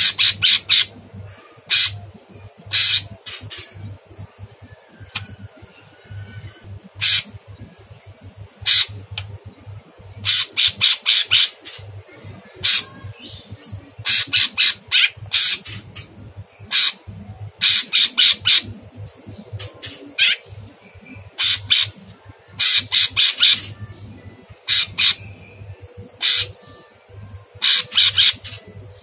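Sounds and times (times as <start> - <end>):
bird giving harsh rasping calls: 0.0 - 1.0, 1.7 - 2.0, 2.7 - 3.8, 7.0 - 7.3, 8.6 - 9.2, 10.2 - 11.8, 12.6 - 13.0, 14.0 - 18.8, 19.9 - 20.5, 21.4 - 22.0, 22.6 - 23.8, 24.7 - 25.3, 26.2 - 26.6, 27.6 - 28.7.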